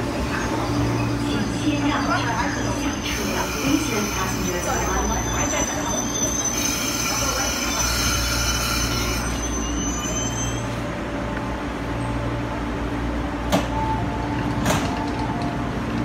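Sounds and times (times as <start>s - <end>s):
train braking with squeal: 0.0s - 11.0s
train doors clunking: 13.4s - 16.0s.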